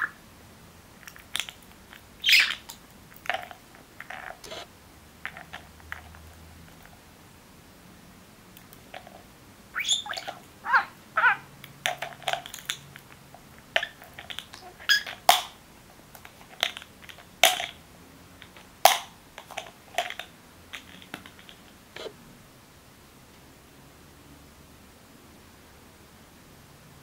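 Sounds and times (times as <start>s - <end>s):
budgie chirps: 2.2s - 2.7s, 9.7s - 11.5s
plastic bottle lids clacking: 18.4s - 22.1s.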